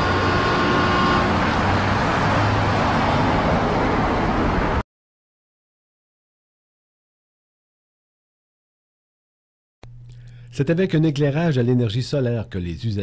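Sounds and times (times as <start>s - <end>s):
road traffic passing: 0.0s - 4.8s.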